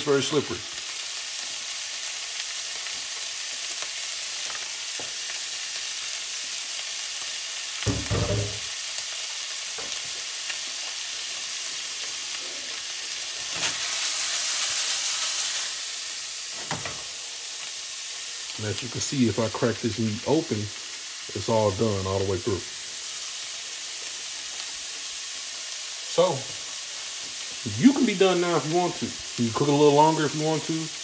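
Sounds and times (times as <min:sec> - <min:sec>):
meat sizzling in a skillet: 0:00.0 - 0:31.0
low thump: 0:07.9 - 0:08.6.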